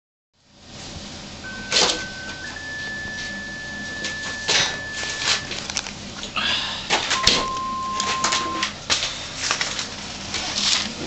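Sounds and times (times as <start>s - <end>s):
lower steady tone: 1.4s - 5.7s, 7.2s - 8.7s
steady high tone: 1.4s - 6.1s, 7.1s - 8.7s.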